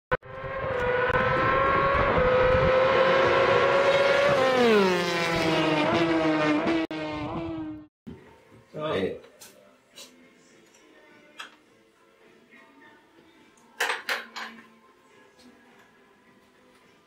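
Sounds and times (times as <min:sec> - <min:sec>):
racing engine at high revs: 0:00.2 - 0:07.9.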